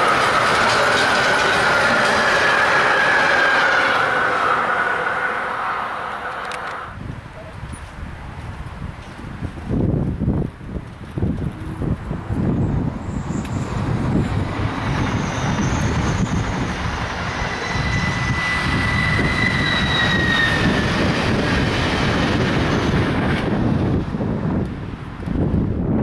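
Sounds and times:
electric train whining past: 0.0s - 7.1s, 9.7s - 26.0s
wind rumble on microphone: 6.9s - 26.0s.

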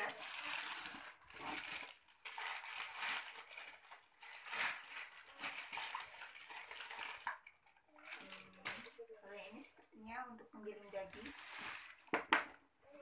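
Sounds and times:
packing wrap crinkling: 0.0s - 9.0s.

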